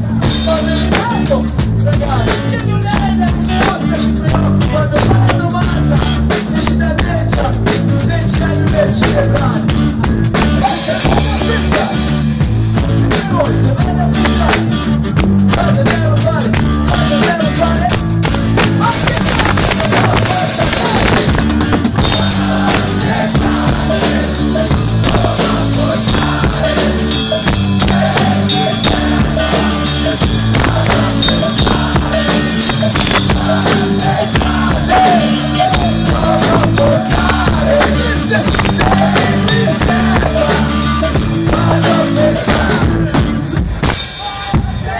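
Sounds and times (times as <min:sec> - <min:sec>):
bass notes: 0:00.0 - 0:43.9
drum kit beat: 0:00.0 - 0:44.9
person singing: 0:18.8 - 0:21.3, 0:22.0 - 0:44.9.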